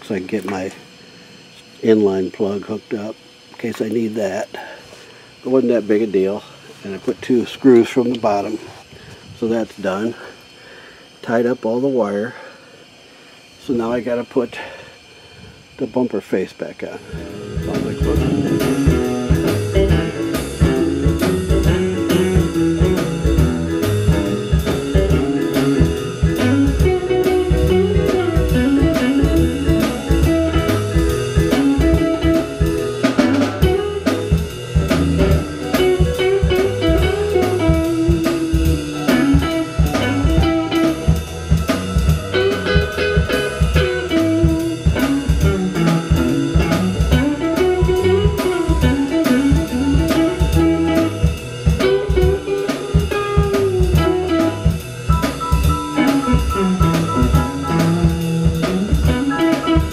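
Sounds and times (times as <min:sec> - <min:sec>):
guitar: 0:00.0 - 0:10.6, 0:16.8 - 0:59.9
drum kit steady beat: 0:16.9 - 0:59.9.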